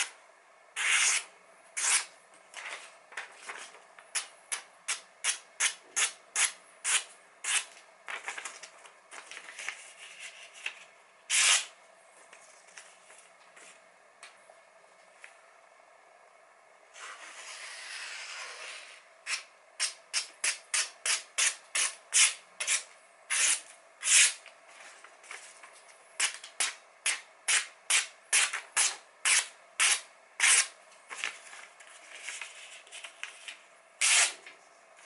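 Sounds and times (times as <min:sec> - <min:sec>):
knife slicing paper: 0:09.6 - 0:11.7, 0:34.0 - 0:34.4.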